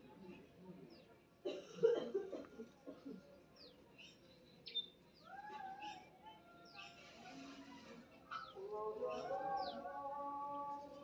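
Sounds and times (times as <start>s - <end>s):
small birds chirping: 3.5s - 10.1s.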